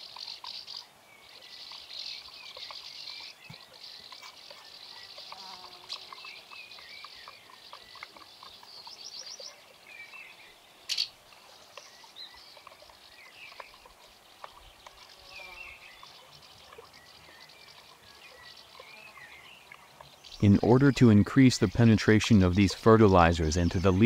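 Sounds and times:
birds chirping: 0.0 - 24.0
insect buzzing: 4.0 - 6.6, 14.9 - 16.2.

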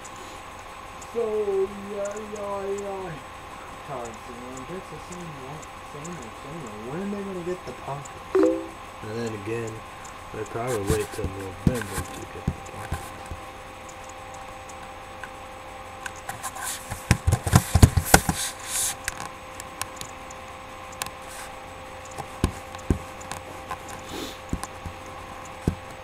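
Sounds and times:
steady hum: 7.9 - 9.2.

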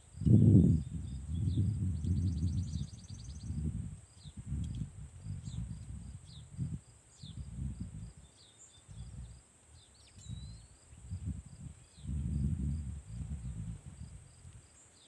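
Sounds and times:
wind rumbling on microphone: 0.0 - 9.4, 10.2 - 14.7
insect drone: 0.0 - 15.0
small birds chirping: 0.2 - 11.2.

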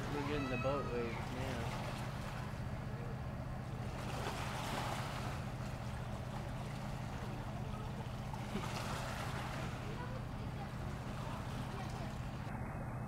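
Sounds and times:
small waves washing against shore: 0.0 - 12.5
distant motorboat engine hum: 0.0 - 13.0.

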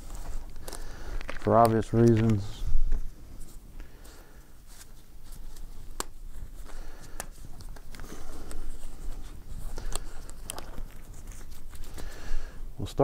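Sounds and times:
rubber gloves rustling and stretching: 0.0 - 13.0
glove snaps: 5.9 - 6.2.

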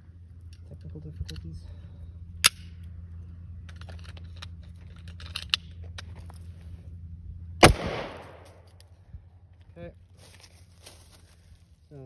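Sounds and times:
low steady hum: 0.0 - 12.0
gunshot with echo: 7.6 - 8.6.

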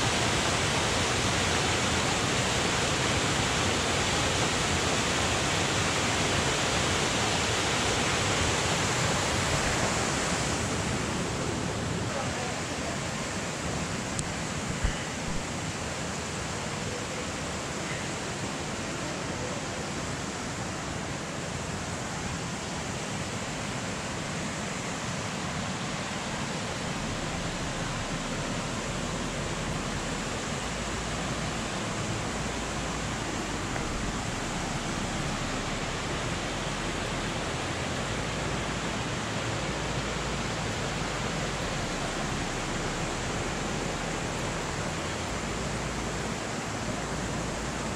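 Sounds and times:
stream rushing over cascades: 0.0 - 47.9.

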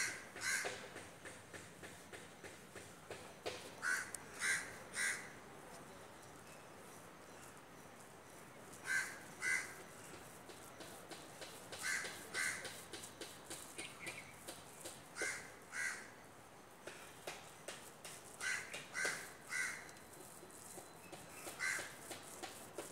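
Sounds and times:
bird cawing: 0.0 - 0.9, 3.8 - 5.3, 8.8 - 9.8, 11.8 - 12.8, 15.2 - 16.1, 18.4 - 19.9, 21.4 - 22.0.

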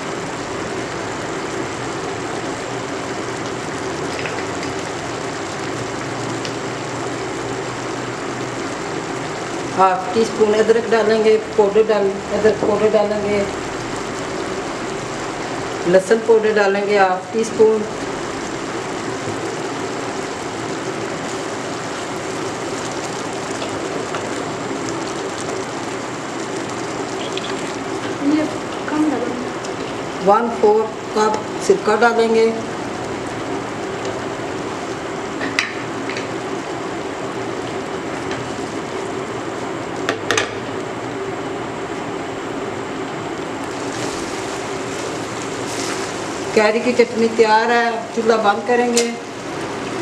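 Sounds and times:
chutney boiling in a pot: 0.0 - 50.0
spatula stirring: 43.7 - 46.7.

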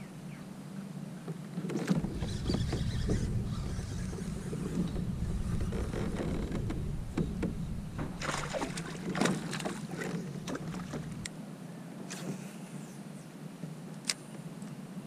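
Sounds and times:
low rumble: 2.0 - 11.3
knocks and clicks on kayak: 4.7 - 11.3
small water splashes: 8.0 - 11.3.

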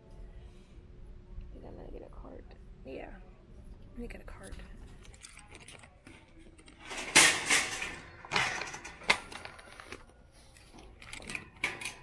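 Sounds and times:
wire shopping cart rattling: 6.5 - 9.8, 10.9 - 12.0.

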